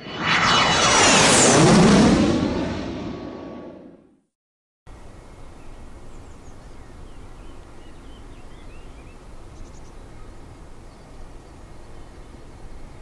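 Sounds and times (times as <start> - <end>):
low rumble and hiss: 4.9 - 13.0
small birds chirping: 5.2 - 13.0.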